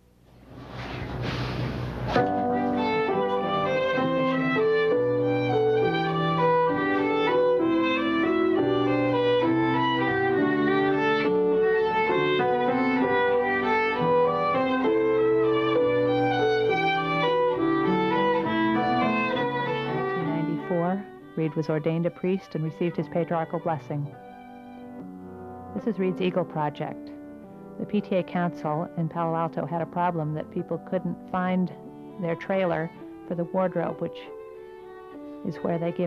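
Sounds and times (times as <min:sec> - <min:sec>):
bowed violin melody: 0:02.2 - 0:36.0.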